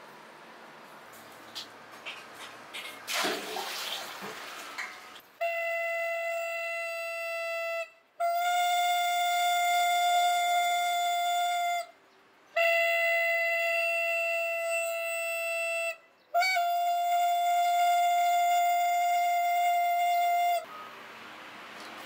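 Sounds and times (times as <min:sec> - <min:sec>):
hand horn blasts: 0:05.4 - 0:12.0, 0:12.6 - 0:20.8.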